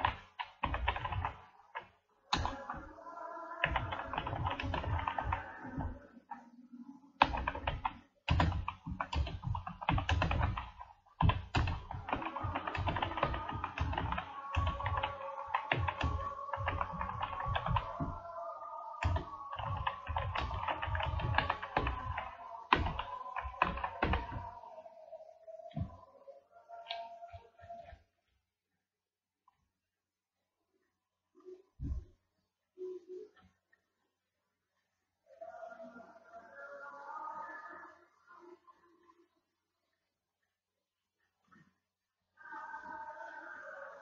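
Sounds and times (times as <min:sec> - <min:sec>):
typing on keyboard: 0:00.0 - 0:02.9, 0:03.6 - 0:06.0, 0:07.2 - 0:18.3, 0:19.0 - 0:24.5
music: 0:12.0 - 0:28.1.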